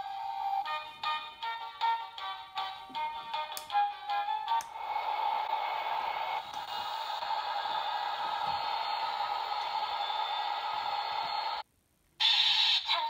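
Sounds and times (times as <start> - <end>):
toy airplane engine sound effect: 12.2 - 13.0.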